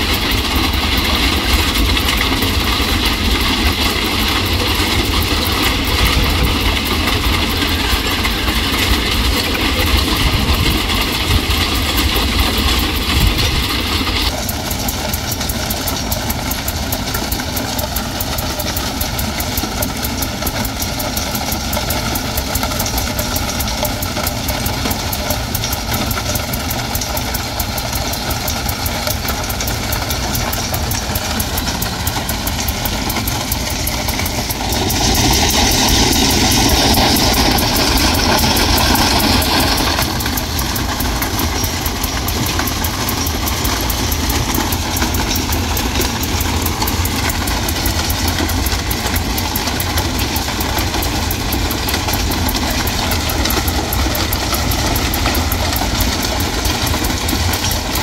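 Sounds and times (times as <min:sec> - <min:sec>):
diesel engine running: 0:00.0 - 0:58.0
broom sweeping stones gritty rush: 0:30.0 - 0:48.3.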